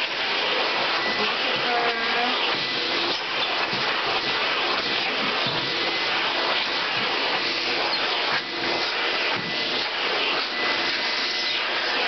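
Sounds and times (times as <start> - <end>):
vacuum cleaner running: 0.0 - 12.0.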